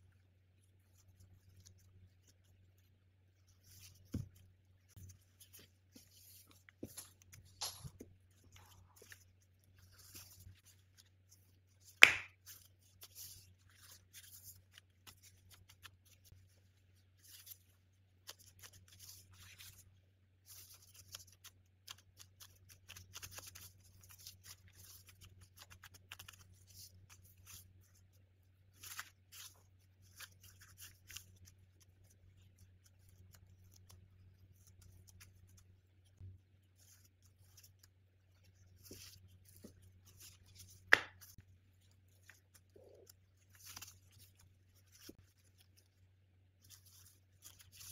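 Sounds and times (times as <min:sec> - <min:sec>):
plastic gloves crinkling: 0:00.1 - 0:47.9.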